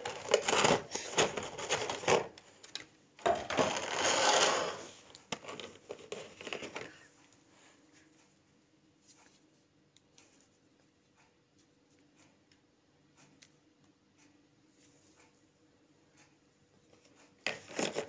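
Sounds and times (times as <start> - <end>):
plastic packaging crackling: 0.0 - 2.4.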